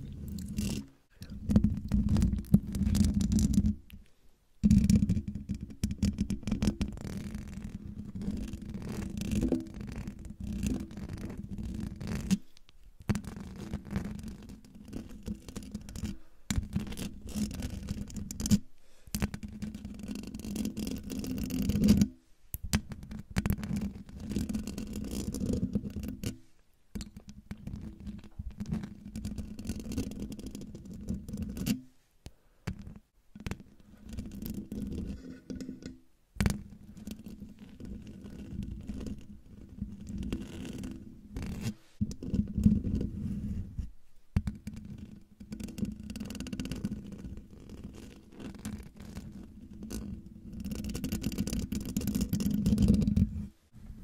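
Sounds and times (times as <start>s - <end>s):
fingernails scratching microphone grille: 6.6s - 12.5s, 33.5s - 35.9s.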